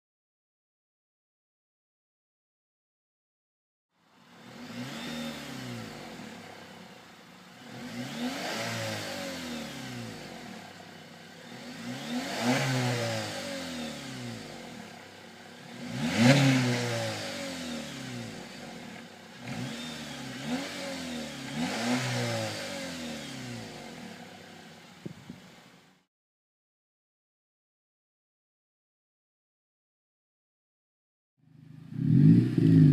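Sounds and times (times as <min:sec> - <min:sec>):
car engine revving: 0:04.0 - 0:26.0, 0:31.5 - 0:32.9.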